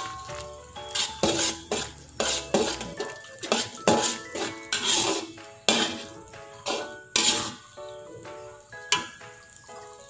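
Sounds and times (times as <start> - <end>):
metal ladle scraping wok: 0.0 - 7.7.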